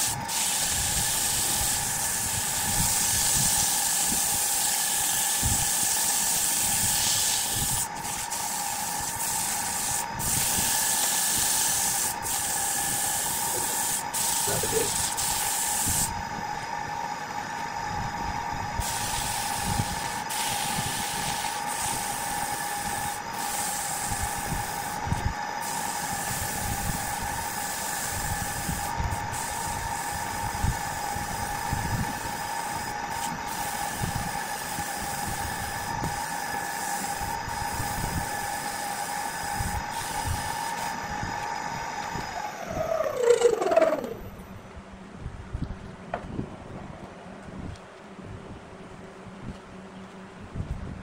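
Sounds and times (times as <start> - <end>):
sandpaper hissing on spinning wood: 0.0 - 16.2, 18.8 - 41.0, 42.4 - 44.2
wood lathe motor whine: 0.0 - 44.4.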